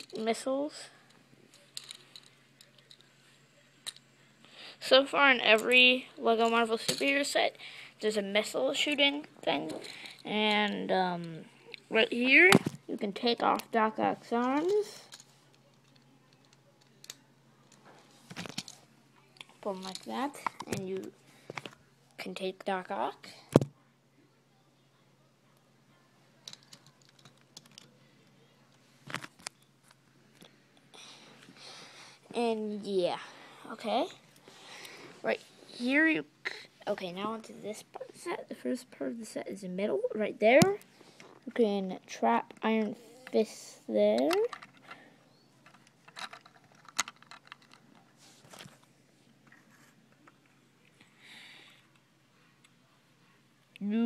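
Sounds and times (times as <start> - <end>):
plastic pieces clicking: 26.4 - 27.9, 45.6 - 47.9.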